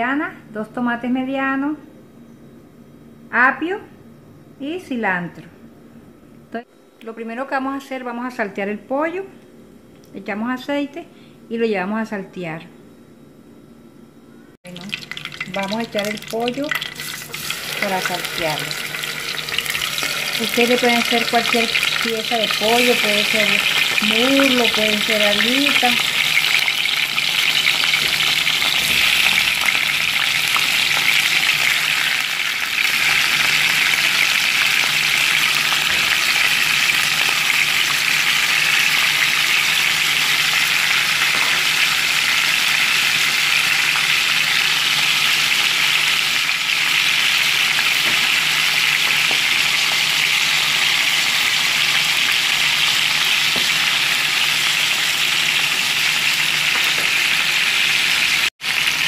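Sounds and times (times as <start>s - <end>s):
chicken sizzling in hot oil: 14.7s - 59.0s.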